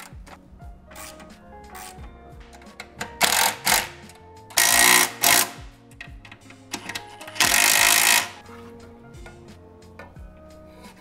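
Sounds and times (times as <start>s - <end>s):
quiet background music: 0.0s - 11.0s
socket ratchet clicking: 2.6s - 8.4s.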